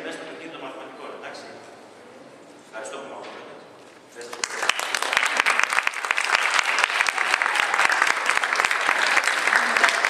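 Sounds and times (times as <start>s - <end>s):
audience applauding: 4.3s - 10.0s.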